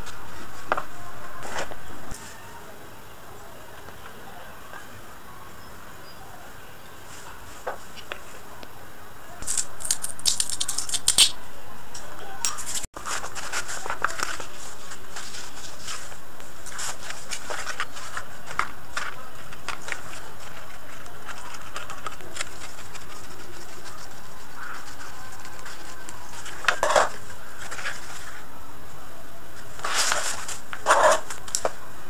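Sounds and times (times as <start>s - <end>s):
quick clicks and scratches: 9.4s - 11.3s, 16.6s - 28.4s
scissors cutting: 9.4s - 11.3s
scratchy rustling of wadding: 12.4s - 31.8s.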